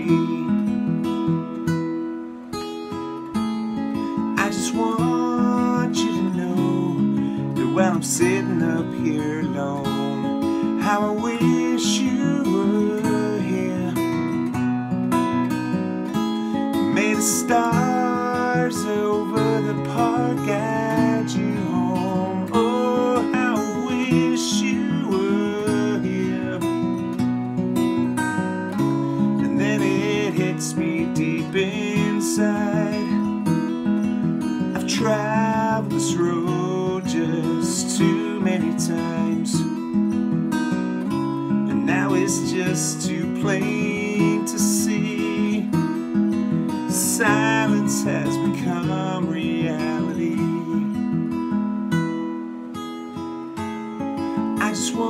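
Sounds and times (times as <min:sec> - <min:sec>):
man singing: 0:00.0 - 0:00.8, 0:04.2 - 0:14.6, 0:16.2 - 0:27.2, 0:28.7 - 0:33.8, 0:34.6 - 0:40.0, 0:41.6 - 0:51.4, 0:54.4 - 0:55.0
strummed acoustic guitar: 0:00.0 - 0:55.0.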